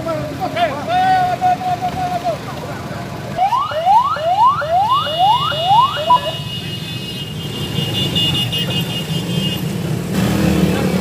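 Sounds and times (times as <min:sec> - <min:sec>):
low rumble of engines: 0:00.0 - 0:11.0
police siren whooping: 0:03.4 - 0:06.4.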